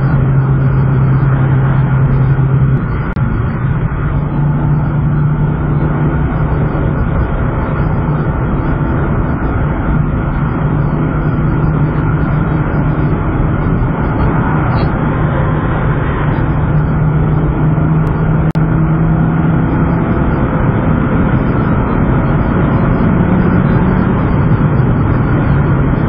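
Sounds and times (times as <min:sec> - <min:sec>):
car engine droning: 0:00.0 - 0:26.0
tyre and road noise: 0:00.0 - 0:26.0.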